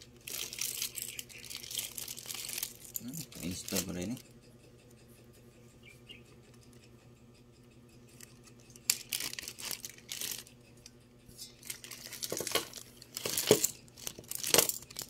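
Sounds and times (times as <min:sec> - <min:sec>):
plastic bag crinkling: 0:00.0 - 0:04.2, 0:08.7 - 0:10.5, 0:11.6 - 0:15.0.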